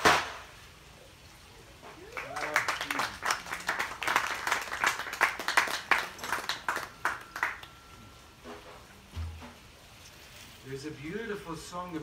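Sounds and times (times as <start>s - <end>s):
audience clapping: 2.1s - 7.8s.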